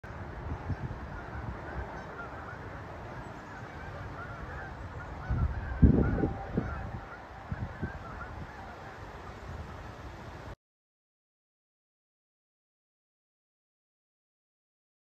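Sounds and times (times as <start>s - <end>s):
geese honking: 0.1s - 9.8s.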